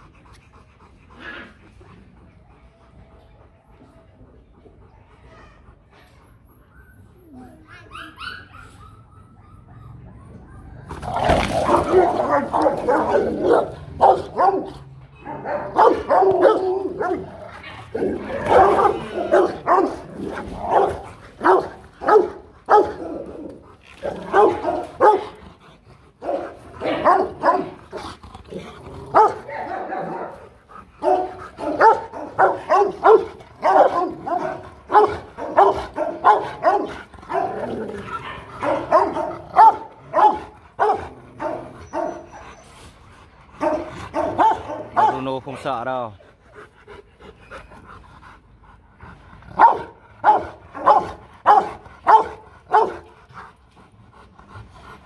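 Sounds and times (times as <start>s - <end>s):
dogs barking deeply: 9.7s - 42.5s, 43.4s - 45.8s, 49.4s - 55.0s.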